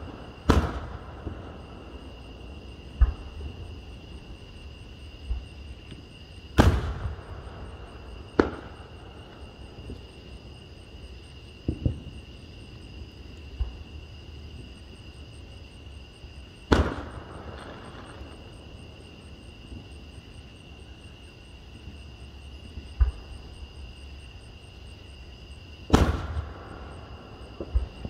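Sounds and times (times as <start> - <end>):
aerial fireworks bursting: 0.0 - 1.6, 6.6 - 7.6, 25.9 - 28.0.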